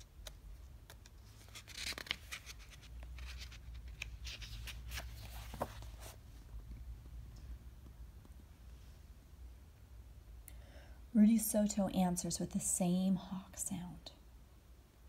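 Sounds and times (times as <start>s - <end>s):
paper rustling: 0.0s - 6.2s
faint low room hum: 0.0s - 15.0s.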